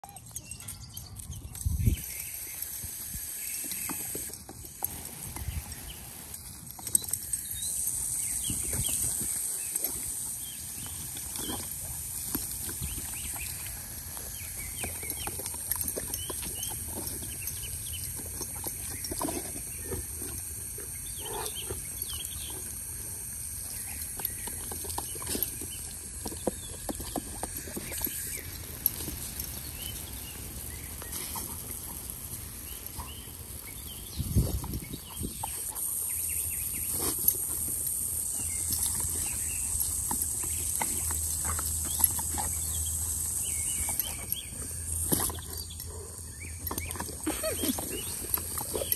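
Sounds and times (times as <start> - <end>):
hose spray hissing and splattering: 1.6 - 45.7
dogs breathing: 2.0 - 48.9.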